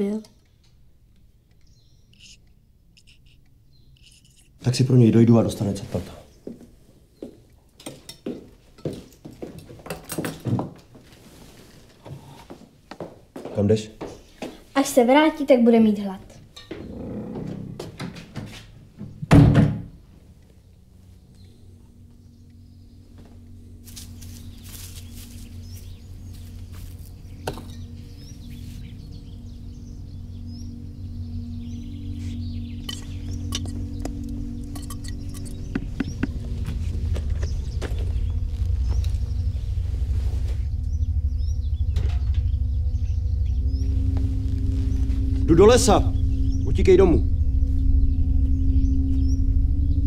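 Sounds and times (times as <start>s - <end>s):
small birds chirping: 0.0s - 8.4s, 13.5s - 18.0s, 20.6s - 50.0s
objects knocking and clinking: 8.8s - 10.8s
low steady hum: 14.8s - 50.0s
footsteps swishing through grass: 23.8s - 27.4s.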